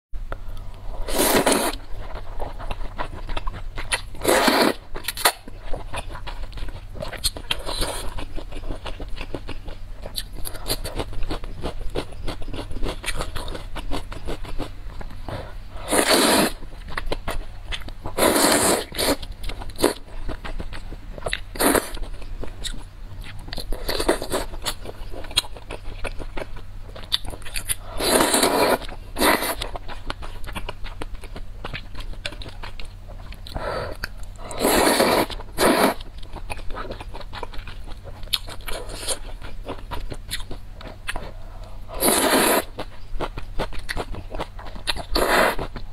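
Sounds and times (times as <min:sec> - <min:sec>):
wet chewing: 0:00.6 - 0:45.9
slurping noodles: 0:01.0 - 0:01.8, 0:04.2 - 0:04.8, 0:15.8 - 0:16.6, 0:18.2 - 0:19.2, 0:27.9 - 0:29.6, 0:34.5 - 0:36.0, 0:41.9 - 0:42.7, 0:45.1 - 0:45.7.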